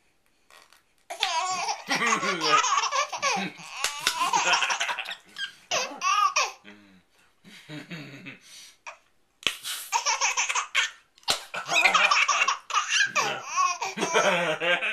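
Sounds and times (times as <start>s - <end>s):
baby laughing: 1.1s - 6.6s, 9.9s - 14.9s.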